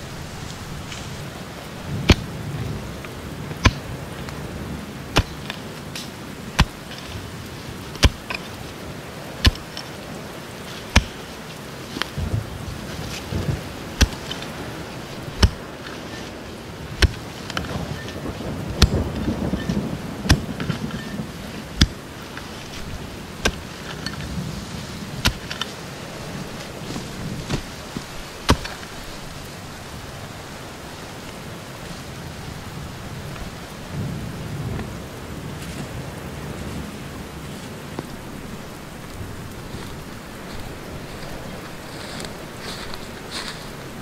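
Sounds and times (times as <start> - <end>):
heavy rain in a forest: 0.0 - 44.0
sharp knocks: 15.4 - 15.6.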